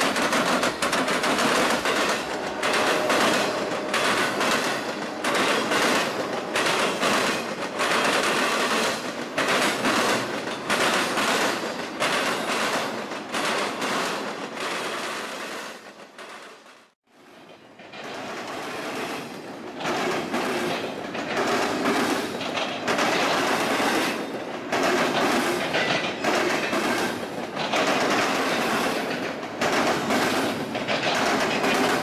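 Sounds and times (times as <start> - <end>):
freight train rumble: 0.0 - 32.0
train wheels clattering on rails: 0.0 - 32.0.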